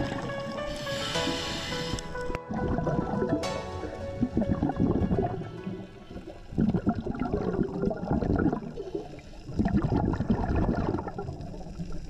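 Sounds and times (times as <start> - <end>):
underwater bubbling: 0.0 - 12.0.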